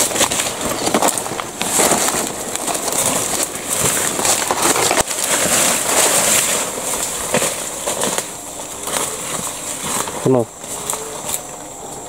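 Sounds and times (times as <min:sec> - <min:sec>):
high-pitched insect drone: 0:00.0 - 0:12.0
leaves and undergrowth rustling: 0:00.0 - 0:12.0.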